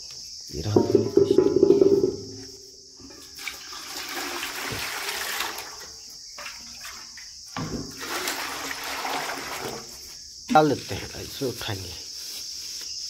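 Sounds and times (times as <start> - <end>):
insects chirring: 0.0 - 13.0
water splashing into steel vessels: 0.6 - 10.7.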